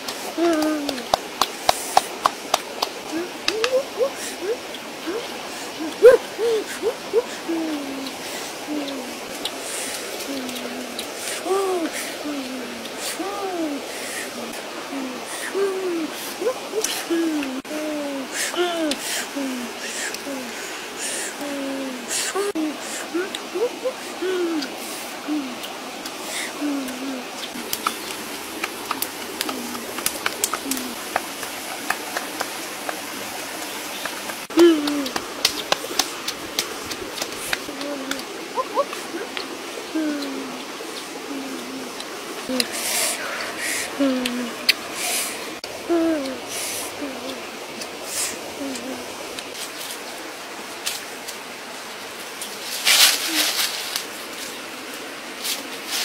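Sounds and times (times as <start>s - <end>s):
steady hiss: 0.0s - 56.0s
dove cooing: 3.1s - 9.2s
campfire crackling and popping: 27.5s - 33.1s.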